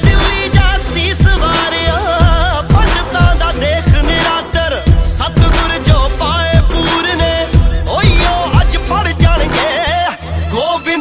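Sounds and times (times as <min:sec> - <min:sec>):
deep drum beat: 0:00.0 - 0:09.7
person singing: 0:00.0 - 0:11.0.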